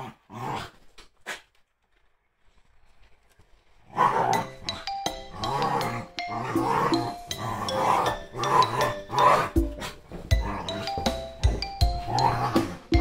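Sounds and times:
dogs growling: 0:00.0 - 0:01.4, 0:03.8 - 0:13.0
music jingle: 0:04.3 - 0:13.0.

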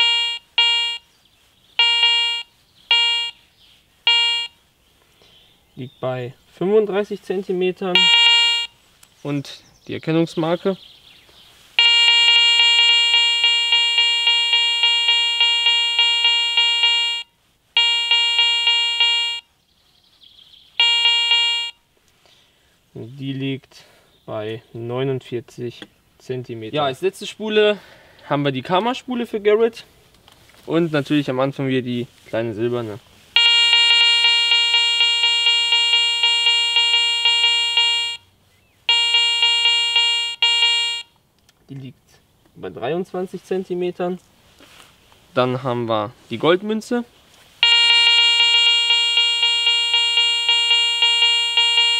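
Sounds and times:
metal detector pulsing tone: 0:00.0 - 0:01.0, 0:01.8 - 0:03.4, 0:04.1 - 0:04.6, 0:08.0 - 0:08.7, 0:11.8 - 0:19.5, 0:20.8 - 0:21.8, 0:33.4 - 0:38.2, 0:38.9 - 0:41.1, 0:47.6 - 0:51.9.

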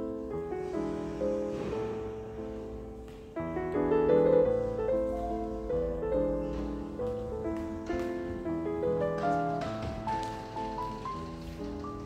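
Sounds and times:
gentle piano music: 0:00.0 - 0:12.0.

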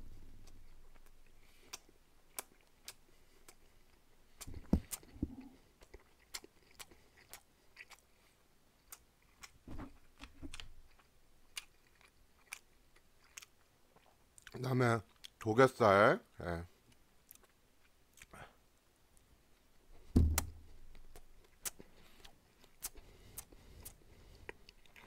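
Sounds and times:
wet chewing mouth clicks: 0:00.4 - 0:08.2, 0:10.2 - 0:15.5, 0:16.9 - 0:18.4, 0:21.1 - 0:25.0.

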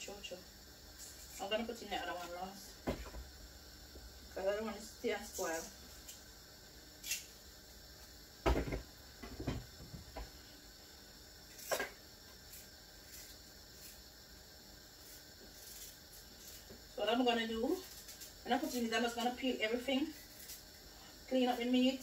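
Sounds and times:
objects knocking on a worktop: 0:08.4 - 0:10.3.

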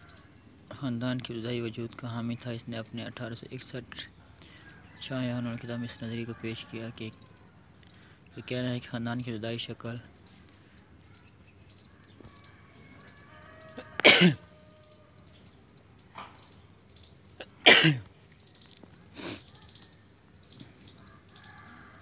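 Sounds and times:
faint high chirping: 0:00.0 - 0:22.0
man coughing: 0:14.0 - 0:14.5, 0:17.4 - 0:18.1.

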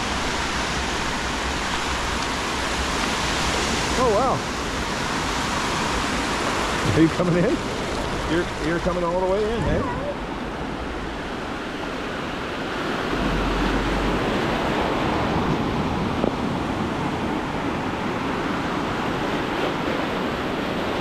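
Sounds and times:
ocean surf breaking: 0:00.0 - 0:21.0.

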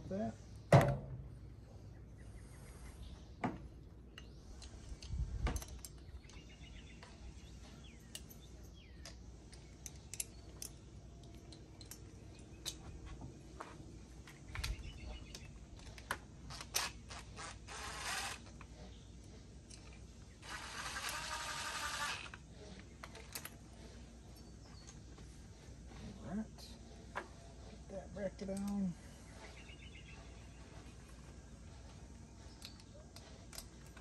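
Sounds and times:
cordless drill running: 0:17.4 - 0:18.5, 0:20.4 - 0:22.4.

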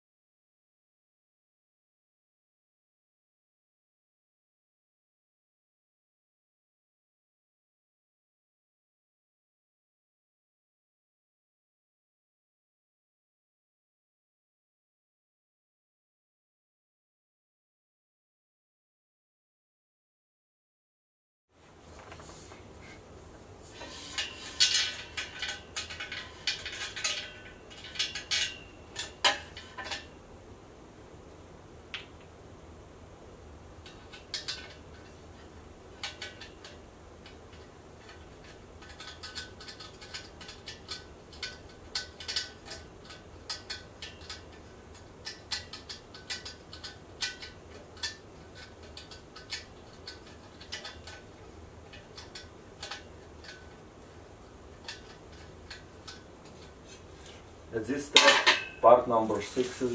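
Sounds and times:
small metallic clicks from bolts: 0:24.2 - 0:30.0, 0:33.8 - 0:57.4.

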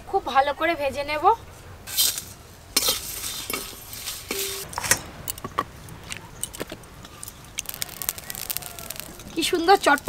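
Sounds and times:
seeds clicking in dry pan: 0:06.5 - 0:10.0.

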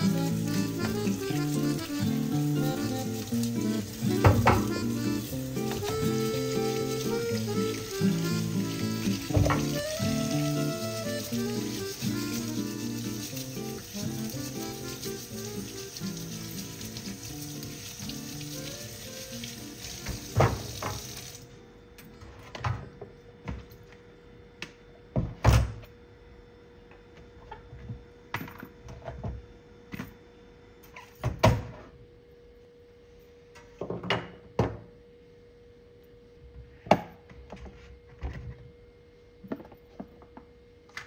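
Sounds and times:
background music: 0:00.0 - 0:20.3
tap water running: 0:00.0 - 0:21.5
colander and utensils clunking in sink: 0:02.7 - 0:07.9, 0:09.0 - 0:09.8, 0:20.0 - 0:21.1.

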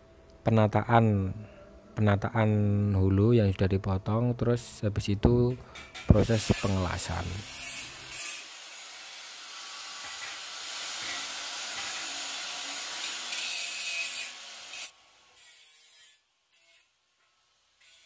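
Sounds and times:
angle grinder cutting metal: 0:06.1 - 0:18.0.

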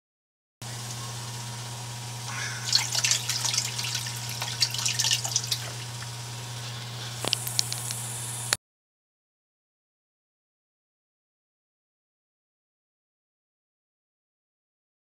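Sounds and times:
steady low hum: 0:00.6 - 0:08.6
water dripping and splashing: 0:02.3 - 0:06.3.

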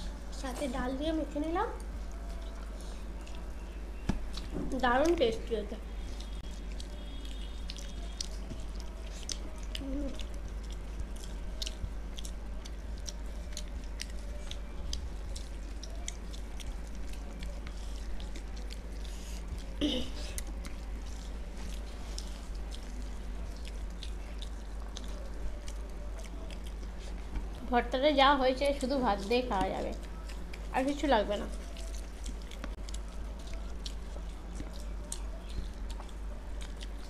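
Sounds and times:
steady low hum: 0:00.0 - 0:37.0
chewing and wet mouth clicks: 0:06.1 - 0:27.6, 0:31.5 - 0:37.0.

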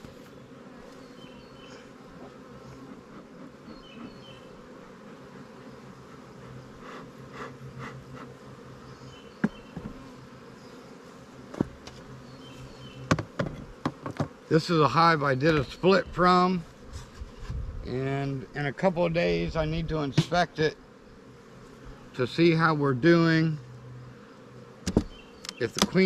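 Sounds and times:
honeybees buzzing: 0:00.0 - 0:26.0
sharp knocks: 0:13.1 - 0:14.3, 0:24.8 - 0:25.1.

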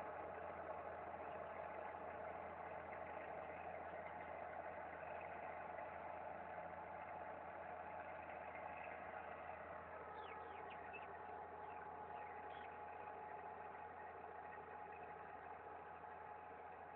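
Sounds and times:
distant tractor diesel engine: 0:00.0 - 0:16.9.

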